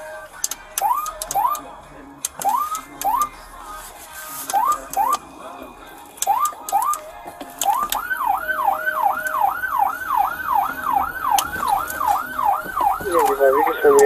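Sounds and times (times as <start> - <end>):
police siren chirps and yelp: 0.8 - 1.6, 2.4 - 3.3, 4.5 - 5.2, 6.2 - 7.0, 7.6 - 14.0.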